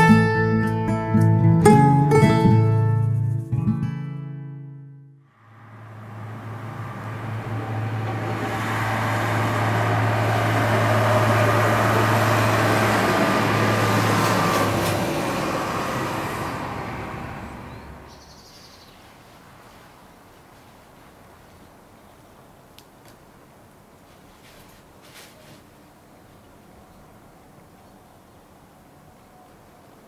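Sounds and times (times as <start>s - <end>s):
vehicle passing by: 5.3s - 18.2s.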